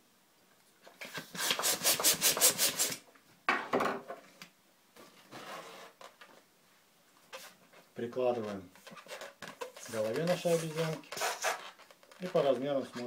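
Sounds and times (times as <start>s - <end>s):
rubbing: 7.3s - 13.0s
hand pump air strokes: 9.1s - 11.8s.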